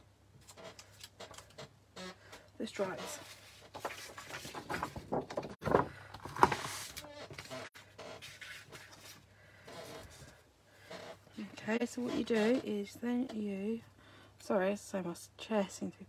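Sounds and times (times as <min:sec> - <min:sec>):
paper sliding and handled: 0:03.2 - 0:07.5, 0:08.2 - 0:09.3
chair squeaking: 0:06.3 - 0:08.7, 0:09.7 - 0:10.2, 0:10.8 - 0:12.8.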